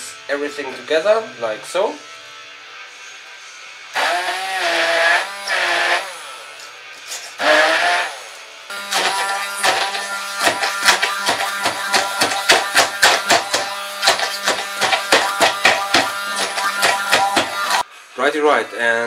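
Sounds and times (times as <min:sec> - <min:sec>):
stick blender motor whirring: 0:04.0 - 0:06.4, 0:07.4 - 0:17.8
music with fast beat: 0:09.6 - 0:17.8.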